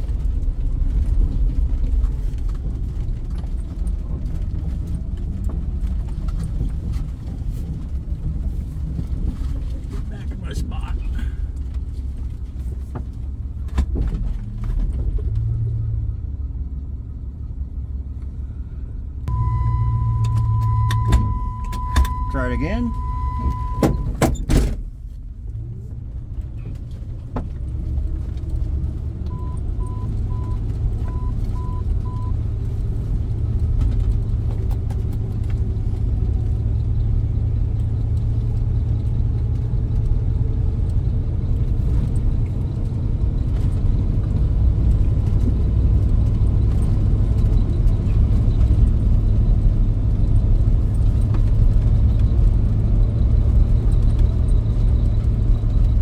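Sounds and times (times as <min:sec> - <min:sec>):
vehicle engine rumble: 0:00.0 - 0:56.0
short electronic beeps: 0:19.3 - 0:24.1.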